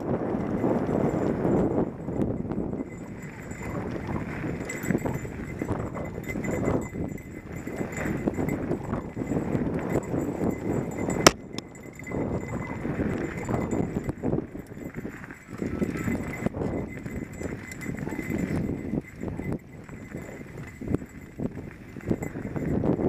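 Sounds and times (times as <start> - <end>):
bike rattling over bumps: 0.0 - 23.0.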